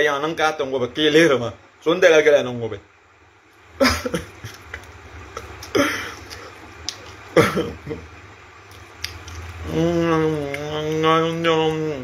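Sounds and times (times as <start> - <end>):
faint low hum: 0.0 - 12.0
man's voice: 9.6 - 12.0.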